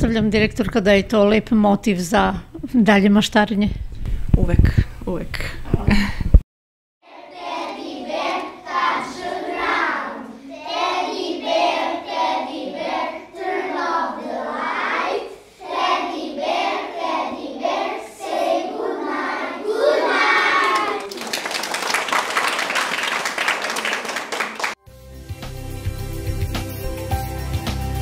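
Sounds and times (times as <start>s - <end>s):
children singing together: 7.0s - 21.1s.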